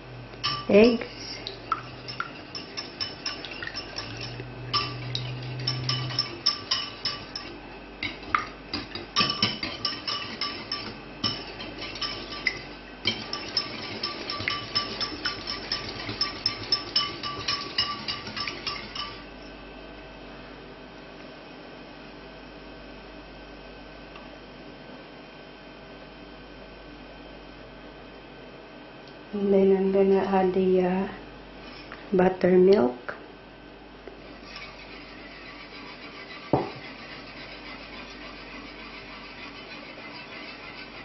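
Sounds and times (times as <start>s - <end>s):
whisk clinking against bowl: 0.4s - 19.3s, 34.4s - 41.0s.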